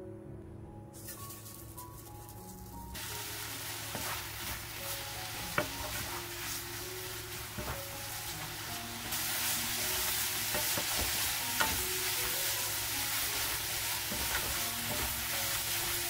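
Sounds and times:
food sizzling in a wok: 1.0 - 16.0
spatula scraping and knocking pan: 3.8 - 16.0.

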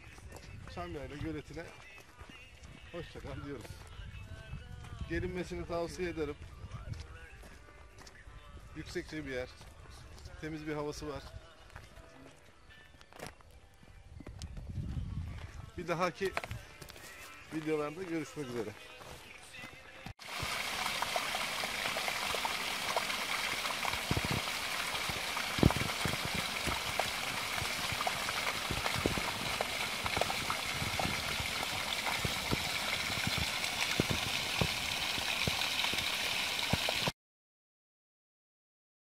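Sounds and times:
stream rushing over stones: 20.2 - 37.1.

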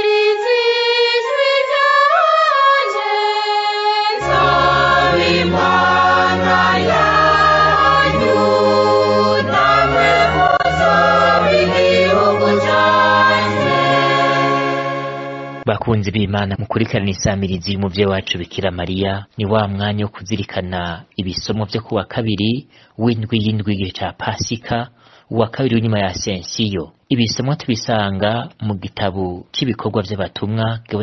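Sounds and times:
choir singing a hymn: 0.0 - 15.6.

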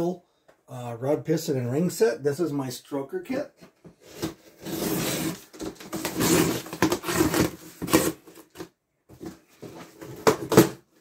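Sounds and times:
scissors cutting packing tape: 4.2 - 8.7
cardboard rustling and knocking: 5.4 - 10.8.

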